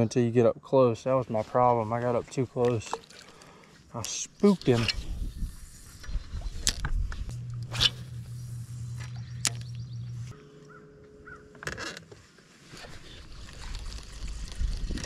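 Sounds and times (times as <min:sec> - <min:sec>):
low hum: 0:04.3 - 0:12.2
higher hum: 0:04.5 - 0:12.0
crows cawing: 0:10.6 - 0:11.5.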